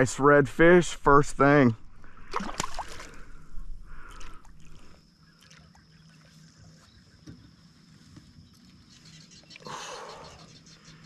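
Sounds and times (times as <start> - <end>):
fish splashing in water: 2.2 - 3.4.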